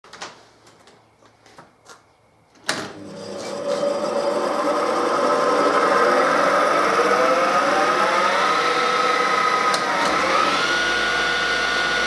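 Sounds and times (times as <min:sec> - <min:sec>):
electric motor humming: 0:03.0 - 0:12.0.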